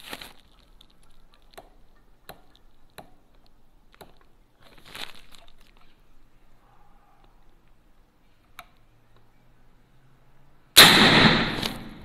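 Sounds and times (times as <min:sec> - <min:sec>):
handling rustle: 0:00.0 - 0:01.6, 0:04.2 - 0:06.0.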